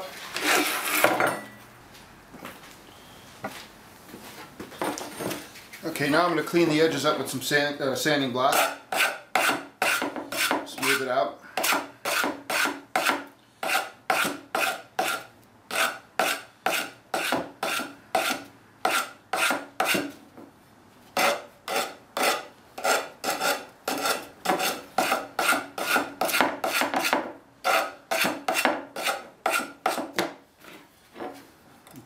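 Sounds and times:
sanding block rasping on pipe: 8.5s - 10.6s, 11.6s - 20.1s, 21.2s - 30.1s.

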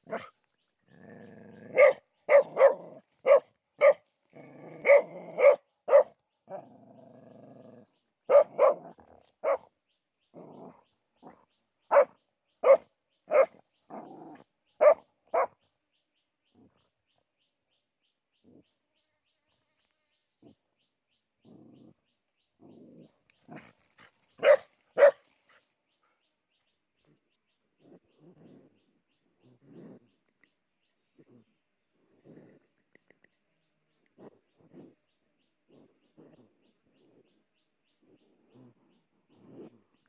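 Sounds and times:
dog barking: 1.7s - 4.0s, 4.8s - 6.2s, 8.3s - 9.7s, 11.9s - 13.6s, 14.8s - 15.6s, 24.4s - 25.2s.

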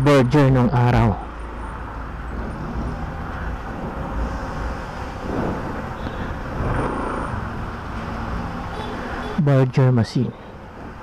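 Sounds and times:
street noise: 0.0s - 11.0s
wind rumble: 1.3s - 9.2s.

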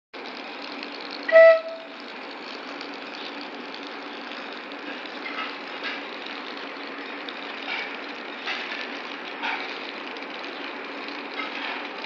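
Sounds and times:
train horn blast: 1.3s - 1.9s.

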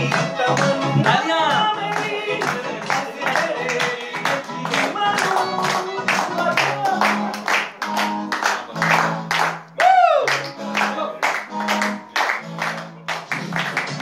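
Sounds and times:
man singing into microphone: 0.0s - 7.3s
backing music: 0.0s - 14.0s
hand clapping: 0.1s - 14.0s.

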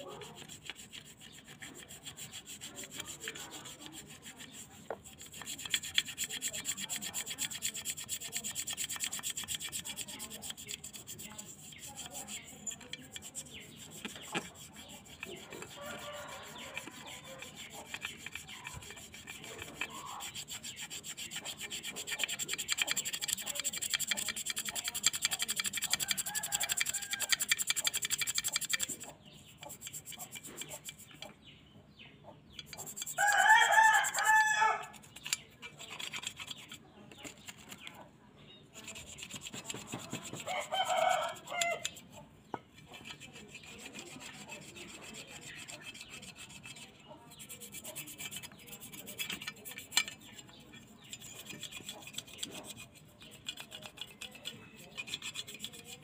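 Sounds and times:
toothbrush scrubbing metal: 0.0s - 31.4s, 32.5s - 38.1s, 38.7s - 56.0s
rooster crowing: 15.8s - 16.8s, 33.2s - 34.9s, 40.5s - 41.8s.

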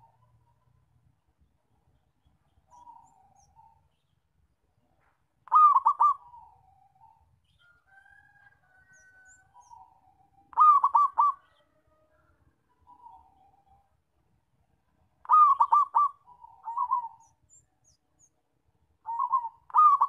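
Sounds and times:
dove cooing: 5.5s - 7.2s, 9.0s - 11.8s, 15.2s - 17.4s, 19.1s - 20.0s.

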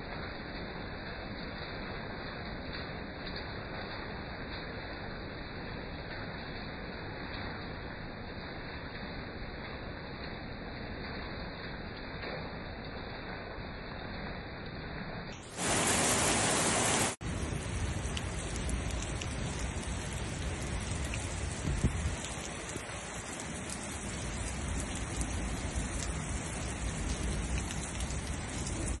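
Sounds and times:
heavy rain: 0.0s - 29.0s
loud rush of noise: 15.4s - 17.2s.

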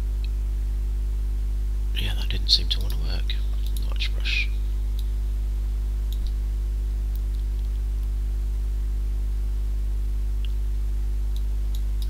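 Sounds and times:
electrical mains hum: 0.0s - 12.0s
faint clicks: 2.8s - 4.0s, 6.1s - 6.4s, 11.3s - 12.0s.

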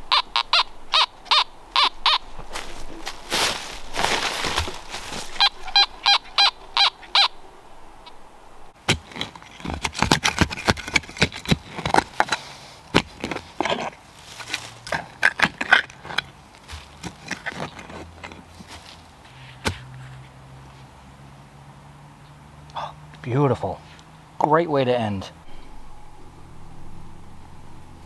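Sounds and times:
digging tool scraping soil: 8.8s - 20.2s
metal detector beeps: 25.4s - 27.8s.

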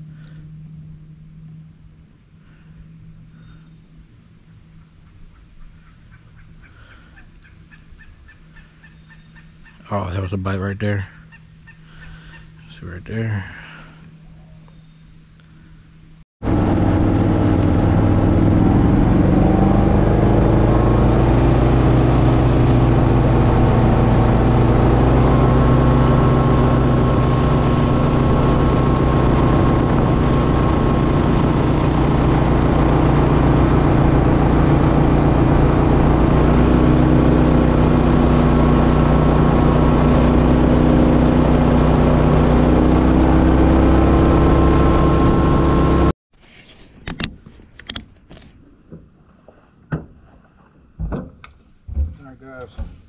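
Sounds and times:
boat motor running: 16.4s - 46.1s.

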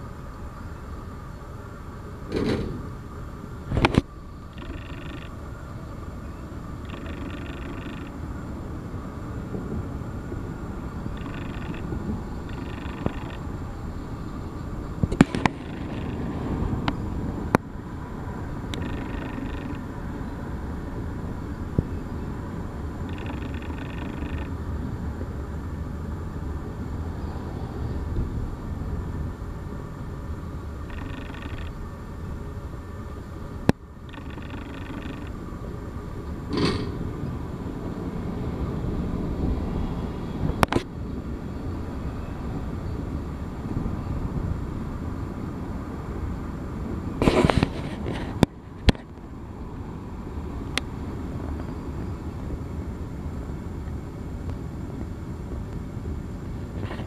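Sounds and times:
sharp clicks and knocks: 36.5s - 37.0s.

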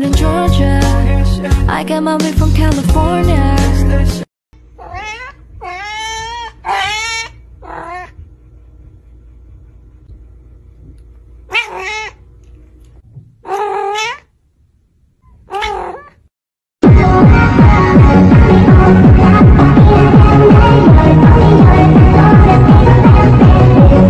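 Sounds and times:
faint room hum: 4.6s - 16.3s
kitten meowing: 4.8s - 8.1s, 11.5s - 12.2s, 13.5s - 14.2s, 15.5s - 16.2s
loud electronic music: 16.8s - 24.0s.

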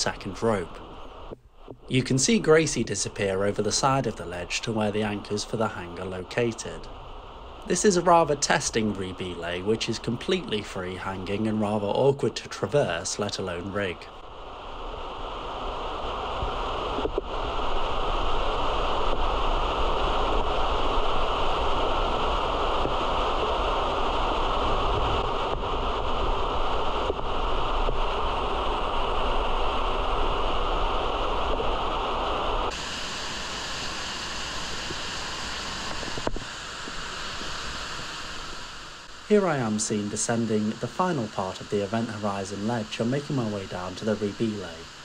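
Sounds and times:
underground waterfall rushing: 13.7s - 45.0s.

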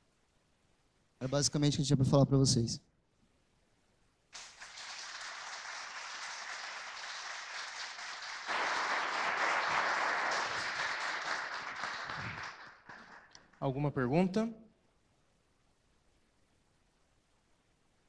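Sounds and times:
audience applauding: 4.4s - 13.7s.

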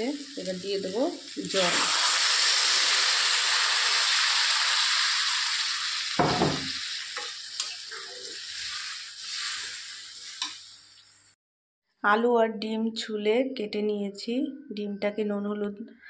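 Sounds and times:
water sizzling in hot oil: 0.0s - 11.4s
brief thump: 6.2s - 6.7s.

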